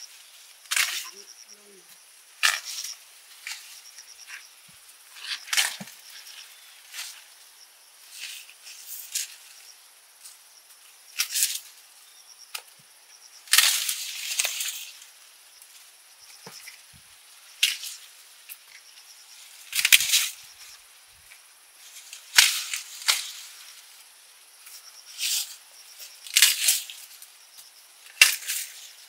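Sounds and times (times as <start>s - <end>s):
corn stalks rustling and snapping: 0.2s - 1.2s, 2.4s - 4.4s, 5.2s - 7.3s, 11.2s - 11.8s, 13.5s - 18.8s, 19.4s - 24.0s, 24.6s - 29.0s.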